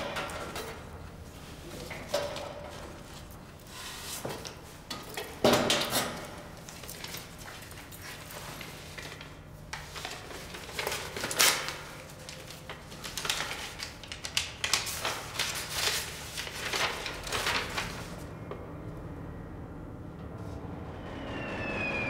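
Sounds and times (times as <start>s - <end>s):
paper rustling and crackling: 6.6s - 18.3s.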